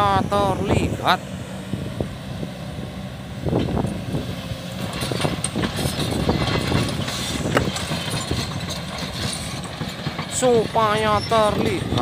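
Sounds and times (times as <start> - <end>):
excavator diesel engine running: 0.0 - 12.0
knocks and clatter: 4.8 - 12.0.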